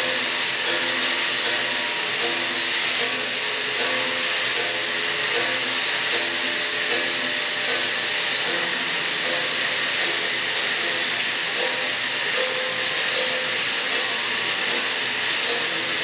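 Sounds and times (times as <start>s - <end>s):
sculpture mechanism whirring: 0.0s - 16.0s.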